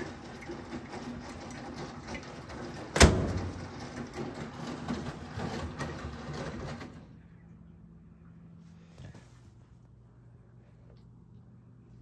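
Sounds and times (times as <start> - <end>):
washing machine running: 0.0 - 10.7
metal door banging: 2.7 - 6.9.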